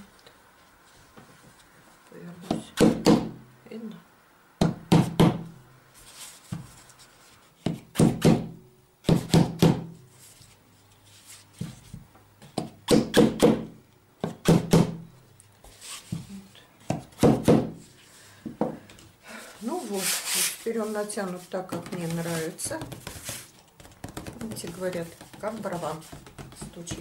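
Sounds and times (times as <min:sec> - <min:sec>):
small hammer tapping wooden wedges: 0:23.8 - 0:27.0.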